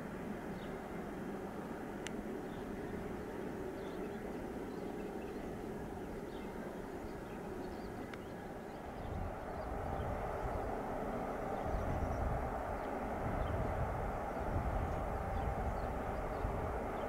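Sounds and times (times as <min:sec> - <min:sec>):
distant train rumbling: 0:00.0 - 0:17.0
deep rumble: 0:08.9 - 0:17.0.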